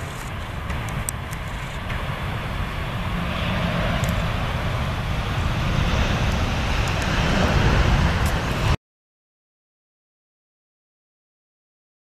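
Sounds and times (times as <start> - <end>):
jet engines rushing: 0.0 - 8.8
wind buffeting microphone: 0.0 - 8.8.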